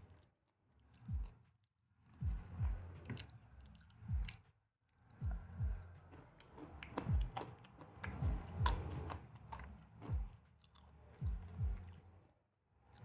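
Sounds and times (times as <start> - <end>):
soft low thumps: 2.2 - 3.0, 4.1 - 4.4, 5.2 - 6.0, 7.0 - 7.4, 8.2 - 9.1, 10.1 - 10.4, 11.2 - 12.0
person chewing with wet mouth sounds: 5.3 - 12.0.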